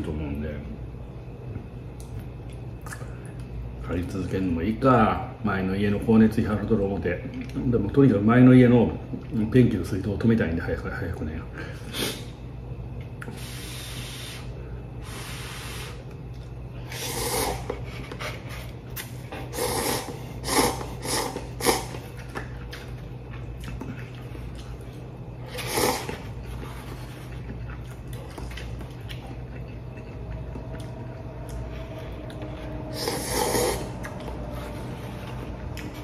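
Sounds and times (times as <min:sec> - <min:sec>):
low electrical hum: 0:00.0 - 0:36.0
man slurping noodles: 0:16.9 - 0:17.9, 0:19.5 - 0:22.0, 0:25.5 - 0:26.2, 0:32.9 - 0:34.1.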